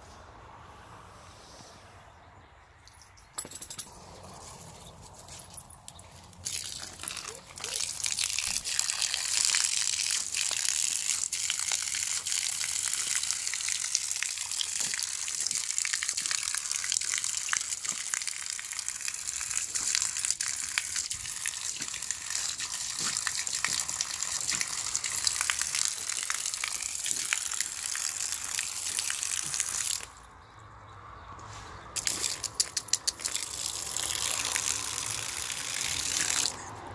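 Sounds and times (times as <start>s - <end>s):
hose water splashing into puddle: 6.0s - 30.3s, 31.9s - 36.9s.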